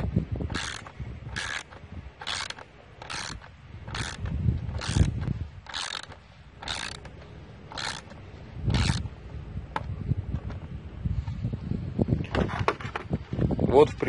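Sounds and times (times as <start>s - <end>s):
socket ratchet clicking: 0.0s - 9.1s.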